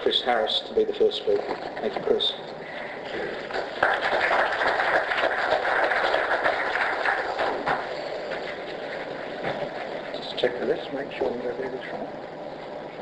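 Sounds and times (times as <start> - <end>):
audience applauding: 3.1 - 10.7.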